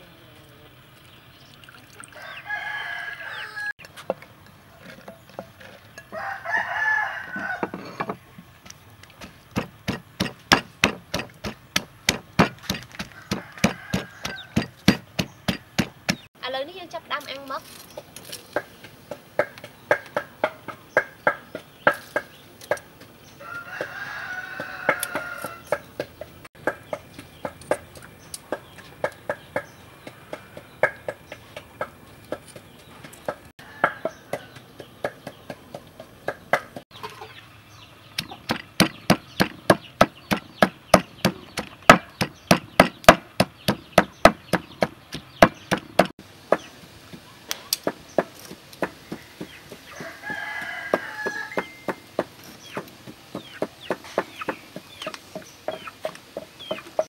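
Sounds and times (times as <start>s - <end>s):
wooden pestle pounding in mortar: 9.2s - 16.3s, 38.2s - 47.2s
chicken clucking: 52.7s - 57.0s.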